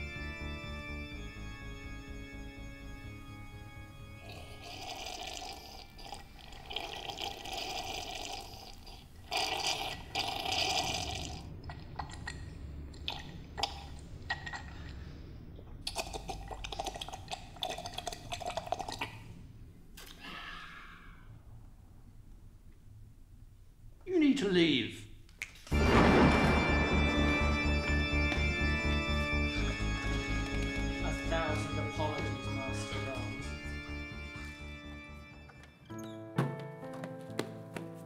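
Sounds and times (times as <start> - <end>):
man slurping from a glass: 4.2 - 12.4, 13.0 - 15.0, 15.8 - 19.3
gulping swallows: 4.3 - 15.0, 15.8 - 19.3.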